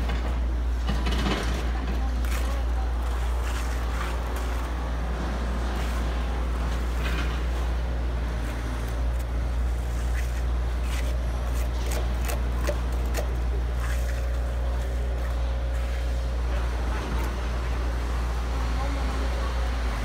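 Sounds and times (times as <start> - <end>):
truck engine running: 0.0 - 20.0
hand tools scraping concrete: 8.4 - 16.6.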